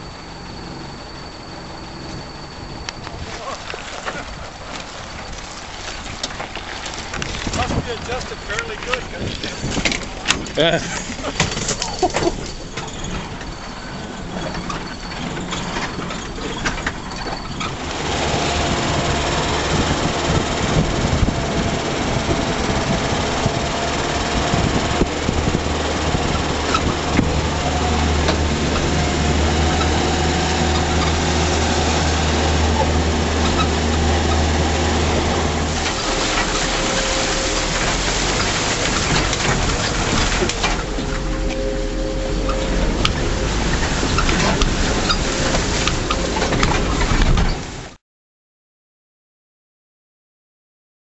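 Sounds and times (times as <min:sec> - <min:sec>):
vehicle engine droning: 0:00.0 - 0:47.9
water splashing against vehicle: 0:01.2 - 0:48.0.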